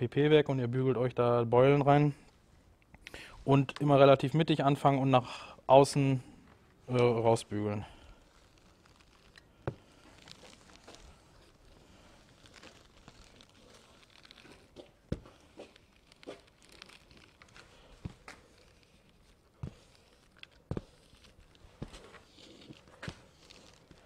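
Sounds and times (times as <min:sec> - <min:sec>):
film rustling and crinkling: 0:06.4 - 0:24.0.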